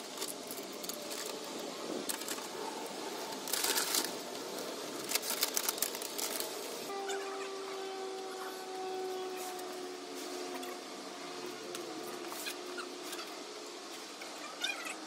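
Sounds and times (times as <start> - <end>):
paper crackling and rustling: 0.0 - 6.9.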